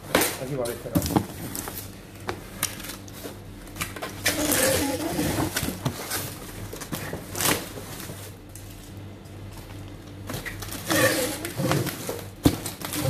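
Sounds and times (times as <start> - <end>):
packing tape tearing: 2.6 - 8.9, 10.3 - 13.0.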